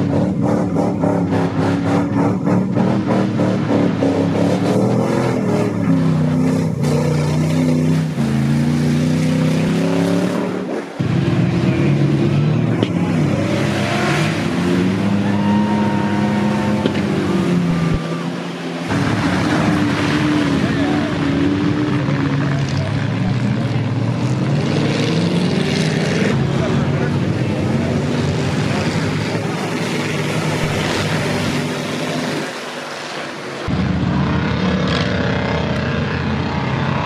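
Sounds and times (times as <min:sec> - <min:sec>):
truck engines revving hard: 0:00.0 - 0:37.0.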